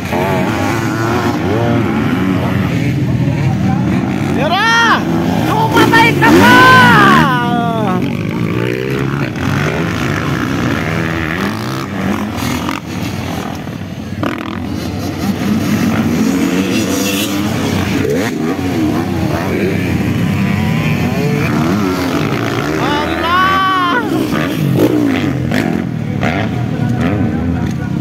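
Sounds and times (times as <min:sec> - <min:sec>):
dirt bike engines revving: 0:00.0 - 0:28.0.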